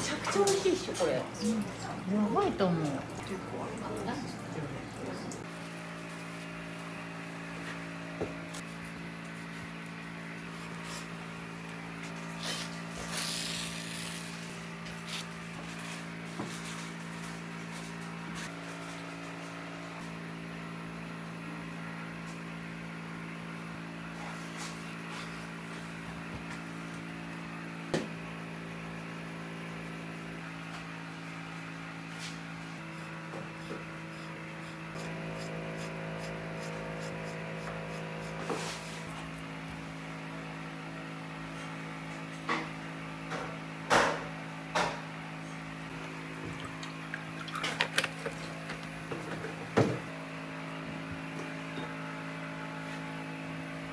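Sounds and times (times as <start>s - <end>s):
steady low hum: 23.7s - 41.7s.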